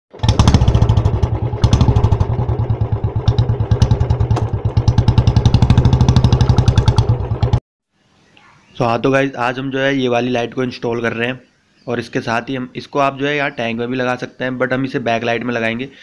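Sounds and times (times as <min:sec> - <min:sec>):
motorcycle engine running: 0:00.1 - 0:07.6.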